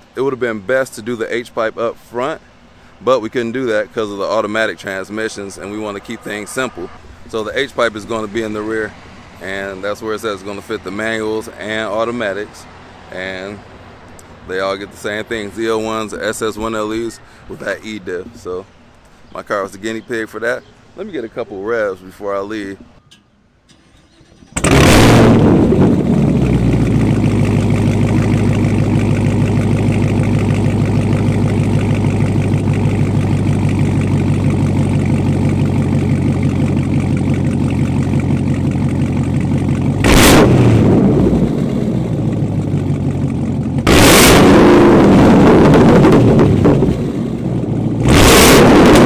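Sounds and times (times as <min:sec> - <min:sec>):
car engine starting and idling: 0:00.0 - 0:20.0, 0:23.6 - 0:49.0
engine revving: 0:23.8 - 0:49.0.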